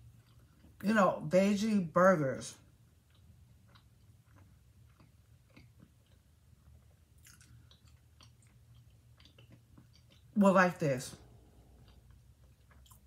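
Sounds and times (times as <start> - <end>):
chewing mouth clicks: 0.0 - 0.8, 3.0 - 10.4, 11.4 - 13.0.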